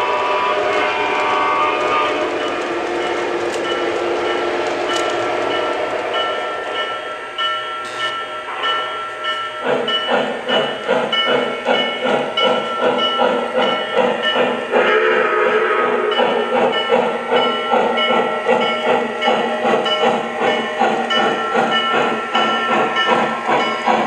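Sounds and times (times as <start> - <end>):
locomotive bell ringing: 2.2 - 24.0
steam exhaust chuffs: 9.5 - 24.0.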